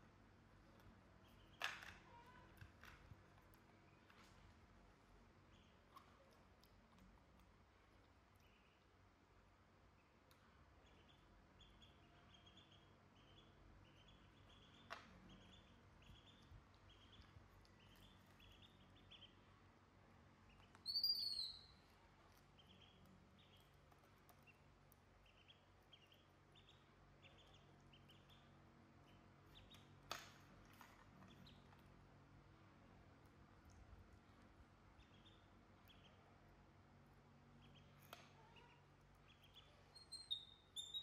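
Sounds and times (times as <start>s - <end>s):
ducklings peeping: 0.8s - 3.0s, 5.3s - 41.0s
soft clicks: 5.9s - 8.6s.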